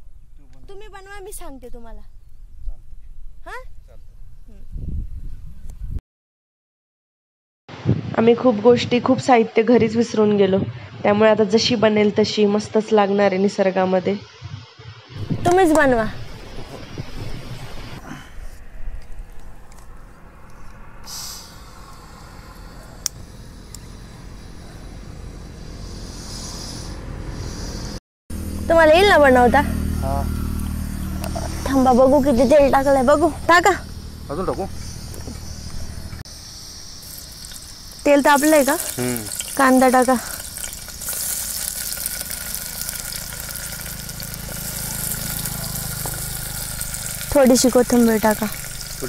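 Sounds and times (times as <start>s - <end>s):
low steady rumble: 15.2s - 49.0s
gas hissing from stove burner: 21.0s - 28.0s, 34.4s - 49.0s
onions sizzling in oil: 36.3s - 49.0s.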